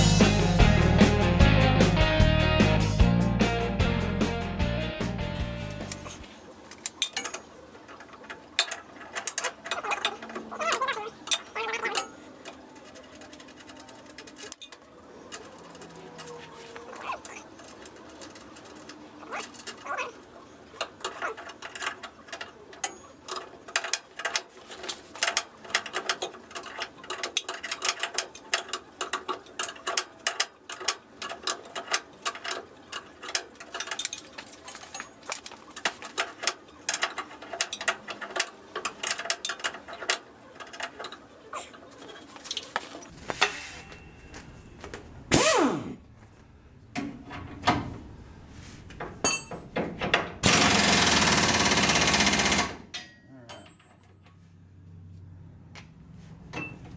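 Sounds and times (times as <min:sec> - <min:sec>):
hand tools clicking on metal: 0:05.7 - 0:20.0, 0:20.8 - 0:43.6.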